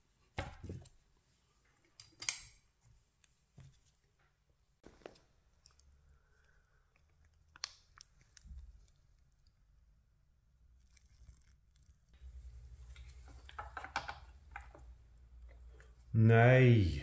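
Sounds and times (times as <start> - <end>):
small parts clicking and scraping: 10.8 - 12.2.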